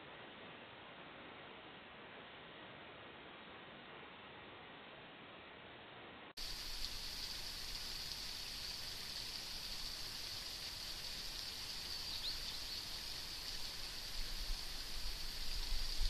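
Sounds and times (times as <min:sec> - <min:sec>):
steady outdoor hiss: 0:00.0 - 0:16.0
wind rumble on microphone: 0:13.5 - 0:16.0.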